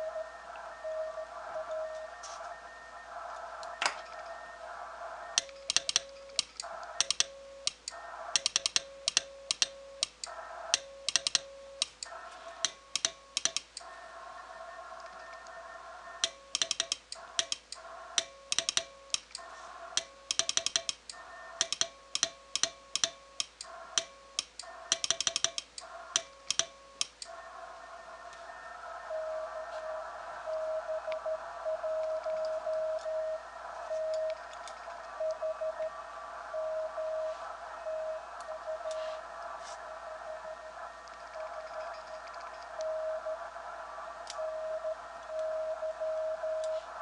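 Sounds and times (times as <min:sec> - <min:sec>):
low sidetone beeps: 0:00.0 - 0:07.7, 0:24.3 - 0:34.5, 0:35.2 - 0:39.2, 0:39.9 - 0:43.5, 0:44.3 - 0:46.8
radio band hiss: 0:00.0 - 0:09.0, 0:10.2 - 0:10.9, 0:11.6 - 0:20.3, 0:25.8 - 0:47.0
morse key clicking: 0:05.4 - 0:10.3, 0:11.1 - 0:13.8, 0:16.2 - 0:19.4, 0:20.0 - 0:27.3.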